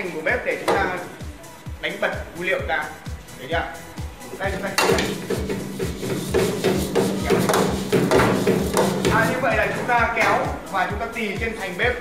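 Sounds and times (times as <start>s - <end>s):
metal wok clanking and scraping: 4.6s - 10.6s.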